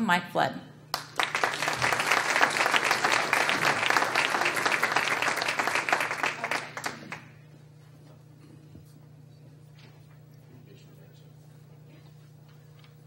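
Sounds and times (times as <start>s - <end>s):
audience applauding: 0.9s - 7.4s.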